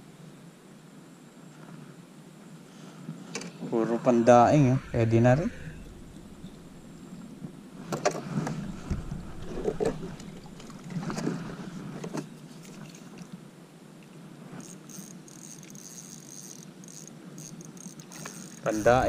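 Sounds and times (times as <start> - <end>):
thin high buzz: 3.6 - 11.1, 14.6 - 19.0.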